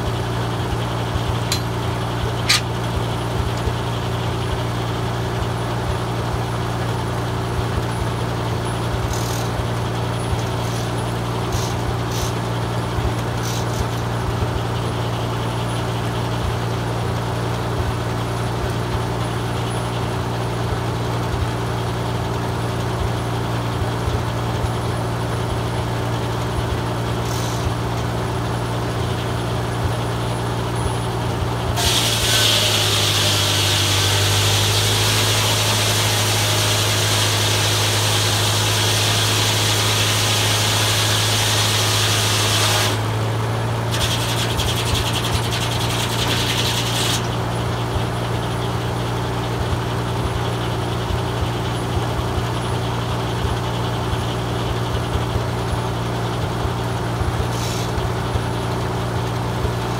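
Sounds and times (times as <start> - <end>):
circular saw blade whining: 0.0 - 4.5, 8.1 - 15.8, 27.0 - 28.1, 30.3 - 48.8
tractor engine running: 0.0 - 59.9.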